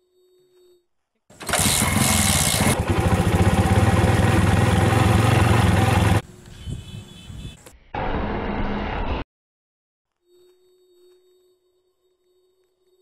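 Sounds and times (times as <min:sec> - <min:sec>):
motorcycle engine running: 0:01.4 - 0:06.2.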